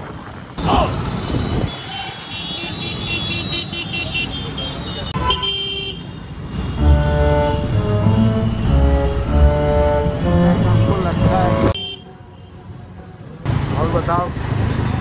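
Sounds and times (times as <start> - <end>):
street traffic: 0.0 - 15.0
vehicle horns tooting: 0.7 - 12.6
background music: 6.8 - 11.8.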